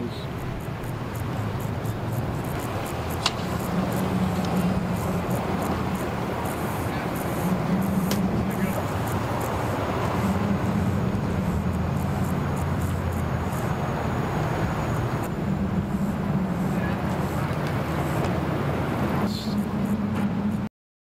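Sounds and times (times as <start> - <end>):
engine idling: 0.0 - 20.7.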